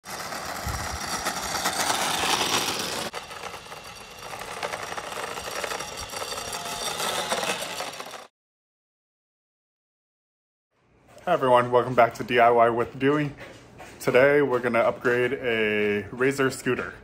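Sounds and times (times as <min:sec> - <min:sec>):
electric scooter motor whining: 0:00.0 - 0:08.3
scooter wheels rolling on asphalt: 0:00.0 - 0:08.3.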